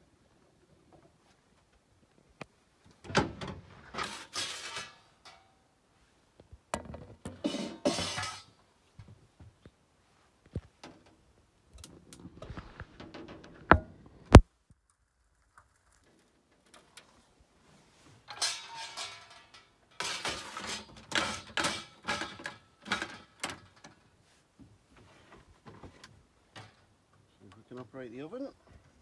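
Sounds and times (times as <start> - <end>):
metal shelf rattling: 3.1 - 5.4, 6.8 - 8.5, 18.3 - 24.0.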